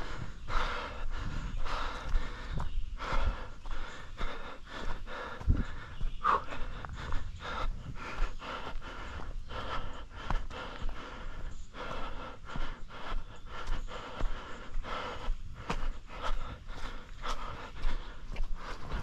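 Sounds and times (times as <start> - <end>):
person panting heavily: 0.0 - 19.0
footfalls on trail: 15.6 - 19.0.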